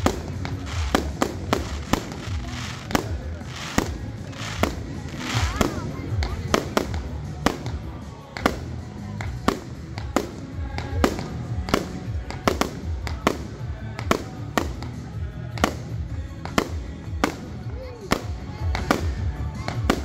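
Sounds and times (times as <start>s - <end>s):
fireworks bursting: 0.0s - 14.9s.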